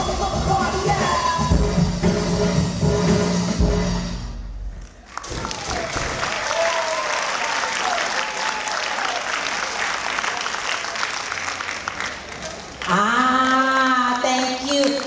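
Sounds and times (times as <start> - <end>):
audience applauding: 5.0 - 13.3
voices cheering: 5.4 - 11.4.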